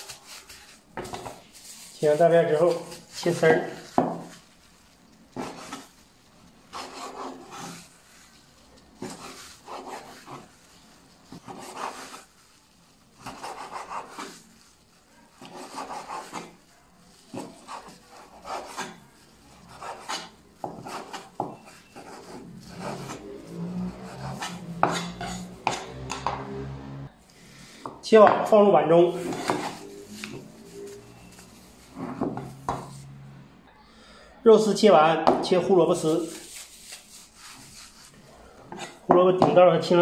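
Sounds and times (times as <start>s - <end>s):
knife strokes on wooden board: 6.7s - 12.4s, 15.4s - 19.0s, 19.6s - 26.2s, 29.1s - 33.1s, 36.0s - 39.6s.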